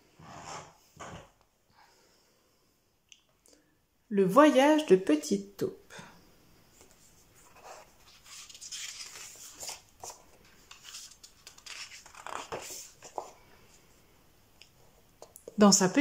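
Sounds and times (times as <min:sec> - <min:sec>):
book pages turning: 0:06.8 - 0:13.4.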